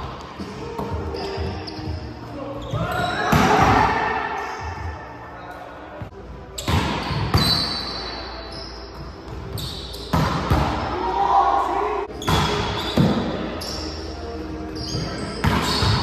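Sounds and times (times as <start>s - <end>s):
sneaker squeaks on floor: 0.8s - 3.6s, 6.5s - 10.6s, 12.1s - 16.0s.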